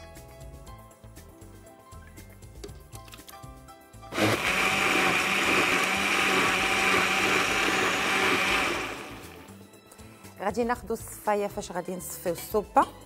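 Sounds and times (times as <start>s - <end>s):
blender running: 4.1s - 9.5s.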